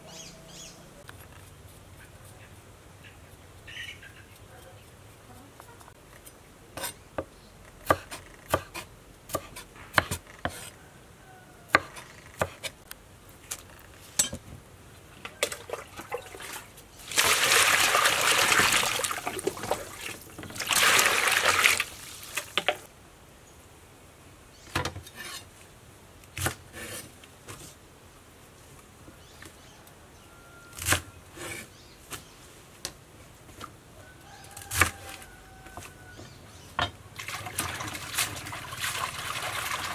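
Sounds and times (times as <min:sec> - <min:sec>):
water swishing and splashing: 0:15.4 - 0:22.9, 0:37.2 - 0:39.9.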